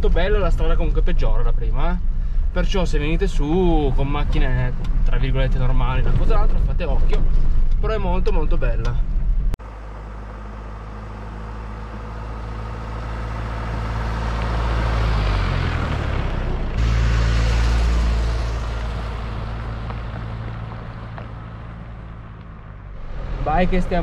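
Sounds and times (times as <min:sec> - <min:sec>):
off-road vehicle engine hum: 0:00.0 - 0:24.0
tyres on gravel: 0:14.2 - 0:24.0.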